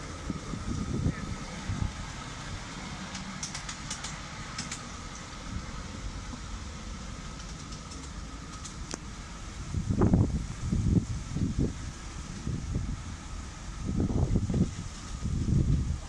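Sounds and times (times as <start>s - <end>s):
miniature steam locomotive running: 0.0s - 16.0s
light clicks: 3.1s - 5.3s.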